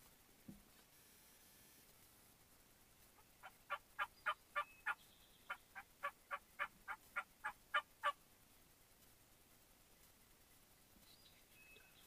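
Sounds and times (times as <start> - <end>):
turkey yelping: 3.4 - 8.2.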